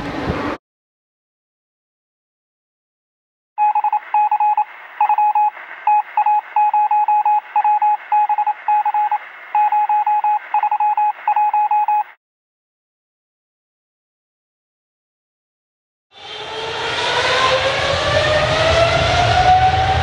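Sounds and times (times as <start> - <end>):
morse code beeps: 3.6 - 12.2.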